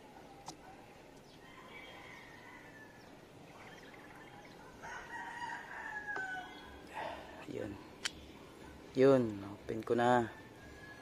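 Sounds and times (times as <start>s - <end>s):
rooster crowing: 1.4s - 3.2s, 4.6s - 7.1s, 10.2s - 11.0s.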